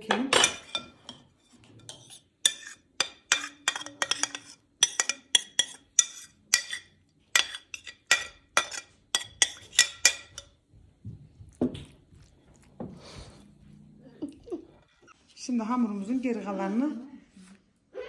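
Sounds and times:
metal spoon scraping a bowl: 0.4s - 10.6s.

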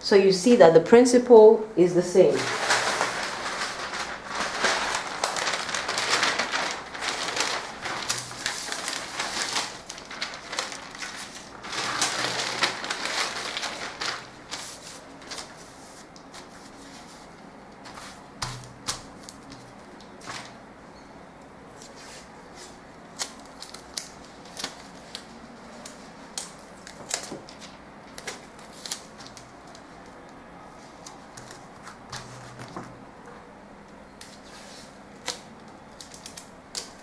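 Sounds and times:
paper rustling and crinkling: 2.3s - 20.6s, 21.7s - 33.0s, 34.2s - 37.0s.

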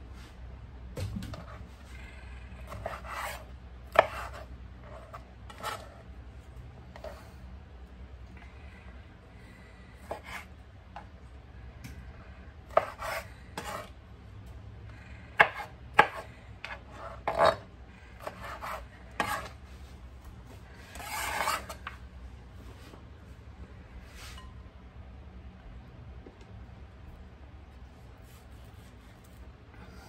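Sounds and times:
rasping scrapes on work surface: 20.8s - 21.8s.

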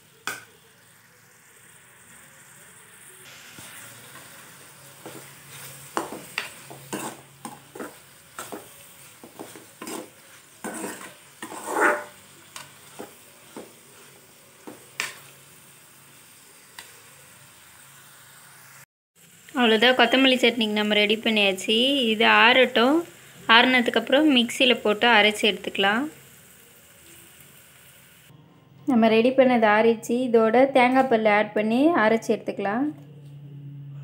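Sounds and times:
faint sizzle: 0.0s - 34.0s
metal spatula scraping a pan: 5.0s - 14.1s.

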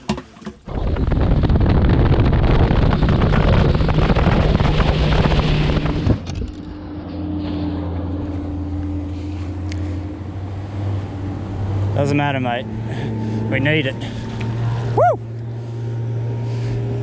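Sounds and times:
wind rushing over microphone: 0.6s - 6.9s
motorboat engine: 0.6s - 17.0s.

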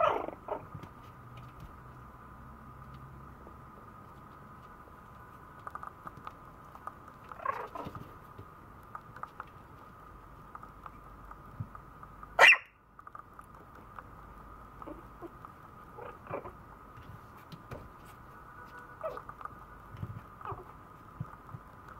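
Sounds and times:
puppy barking: 0.0s - 0.7s, 12.4s - 12.8s, 18.7s - 19.3s
puppy yelping: 0.0s - 0.7s, 7.3s - 8.0s, 12.4s - 12.8s, 14.8s - 16.6s, 18.9s - 19.4s, 20.4s - 20.8s
paws tapping: 3.7s - 12.4s, 13.0s - 21.9s.

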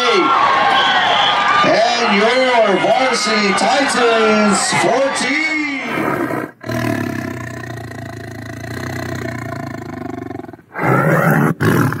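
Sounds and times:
big cat roaring: 5.9s - 12.0s.

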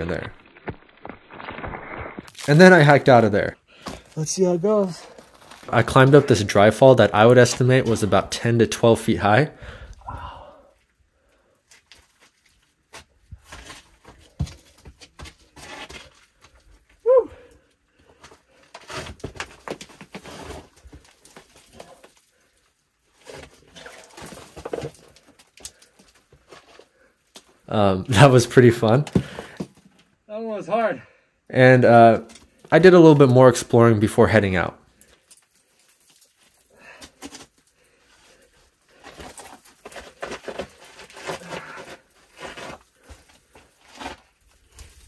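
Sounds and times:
shoes scraping on clay walls: 11.7s - 16.9s, 18.0s - 22.2s, 28.2s - 29.9s, 36.1s - 45.0s
shoes scraping on rock: 38.3s - 45.0s.

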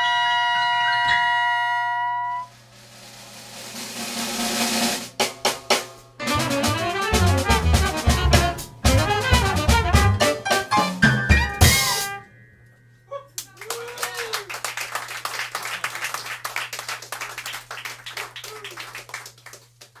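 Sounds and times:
jazz band playing: 1.3s - 12.3s
audience cheer: 13.4s - 16.2s, 17.9s - 19.1s
audience applause: 13.6s - 20.0s.

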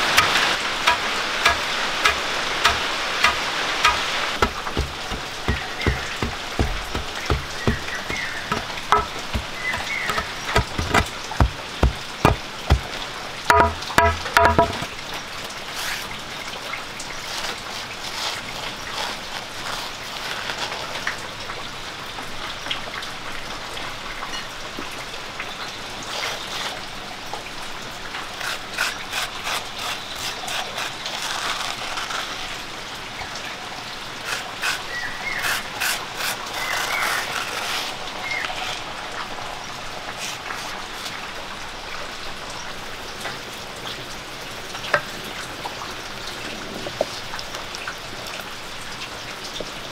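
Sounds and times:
outdoor hiss: 0.0s - 14.0s, 14.8s - 49.9s
scraping in stone mortar: 0.0s - 14.9s, 34.3s - 38.8s, 40.2s - 41.2s.

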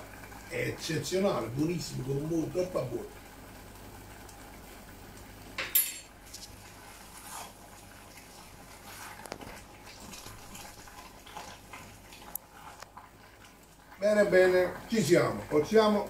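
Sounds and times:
low kitchen hum: 0.0s - 16.0s
wooden spoon stirring thick food: 6.3s - 16.0s.

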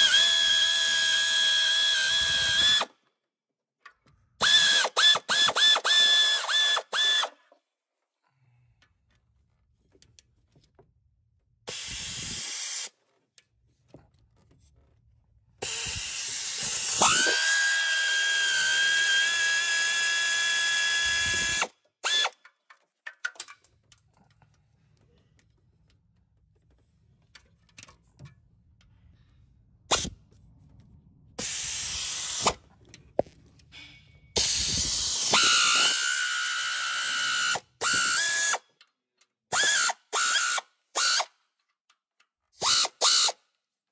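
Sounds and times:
power tool motor whining: 4.4s - 7.3s, 15.6s - 22.3s, 34.4s - 38.6s.

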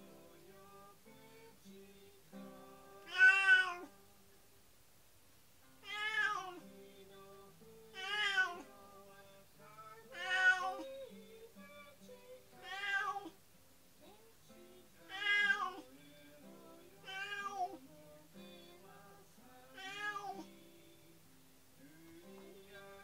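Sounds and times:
soft background music: 0.0s - 4.5s, 5.6s - 23.0s
cat meowing: 3.0s - 3.9s, 5.8s - 6.6s, 8.0s - 8.6s, 10.1s - 11.1s, 12.6s - 13.4s, 15.0s - 15.9s, 17.0s - 17.8s, 19.8s - 20.5s.

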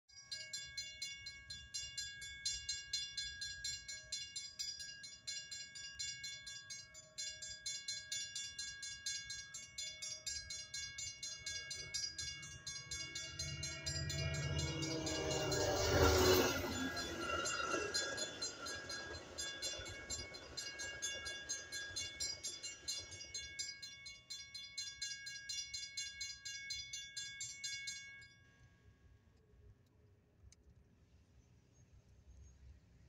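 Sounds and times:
crossing warning bell ringing: 0.2s - 28.4s
train rumble: 11.1s - 23.7s.

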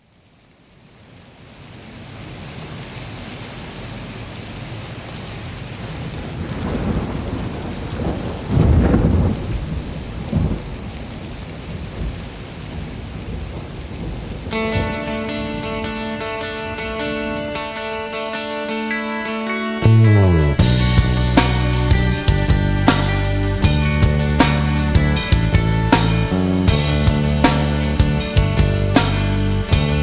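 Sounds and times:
steady rain: 0.0s - 30.0s
thunder rolling: 6.0s - 17.8s, 19.8s - 29.3s.

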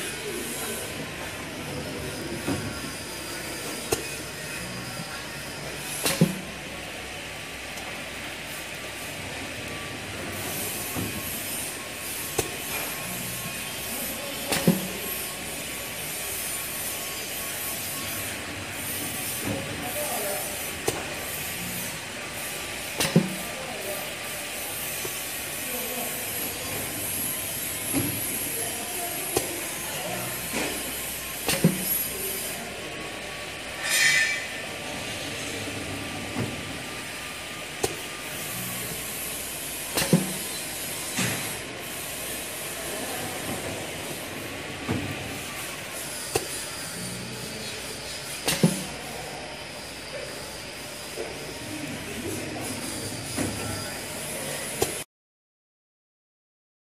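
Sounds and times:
waffle machine mechanical hiss: 0.0s - 55.0s.

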